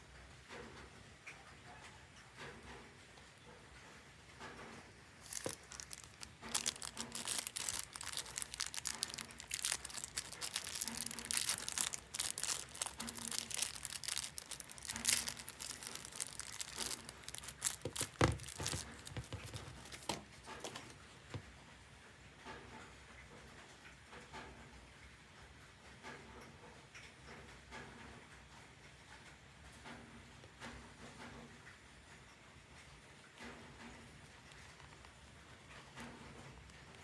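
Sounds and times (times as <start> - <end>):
plastic bag crinkling: 5.1 - 21.4, 34.4 - 37.0.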